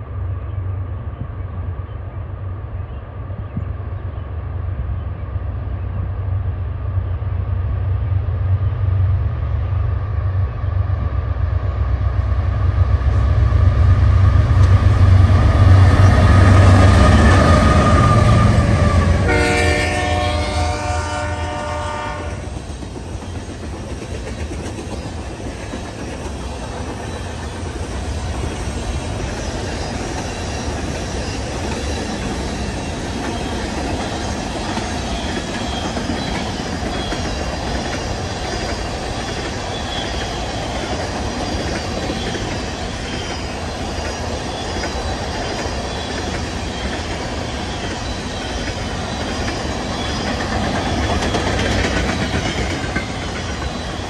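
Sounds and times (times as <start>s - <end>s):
diesel locomotive engines: 0.0s - 54.0s
train horn: 16.2s - 22.6s
freight cars clacking on rails: 20.8s - 54.0s.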